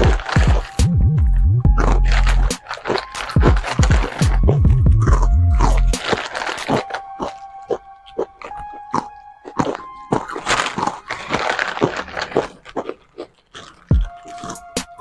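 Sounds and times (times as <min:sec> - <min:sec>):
background music with held notes: 0:00.0 - 0:12.4, 0:13.9 - 0:15.0
chewing crunchy snacks: 0:00.0 - 0:15.0
snack packets crinkling: 0:00.0 - 0:15.0.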